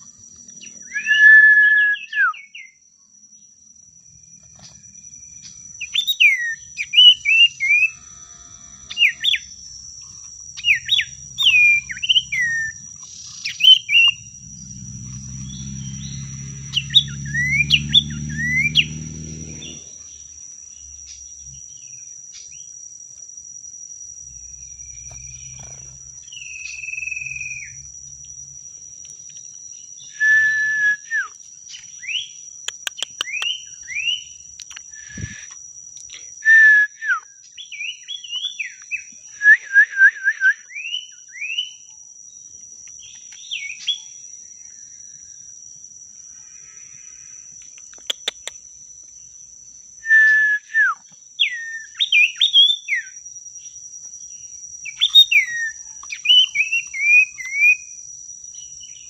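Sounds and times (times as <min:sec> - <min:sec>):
bird whistling calls: 0:00.9 - 0:02.8, 0:05.8 - 0:08.0, 0:10.6 - 0:14.3, 0:15.5 - 0:19.0, 0:30.1 - 0:31.3, 0:34.9 - 0:35.5, 0:50.1 - 0:53.2, 0:54.9 - 0:57.9.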